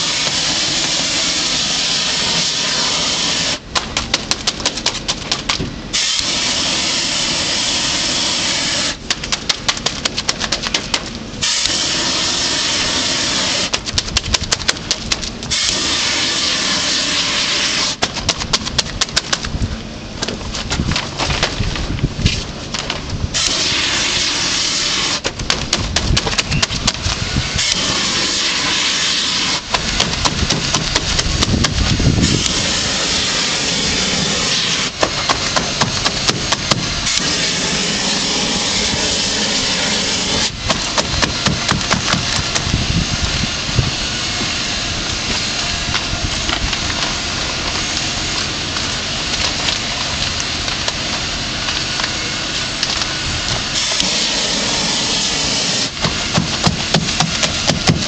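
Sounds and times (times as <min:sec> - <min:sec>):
gas heat gun hissing: 0:00.0 - 0:05.2, 0:05.9 - 0:19.4, 0:23.3 - 0:58.0
crackling clicks: 0:45.9 - 0:52.2.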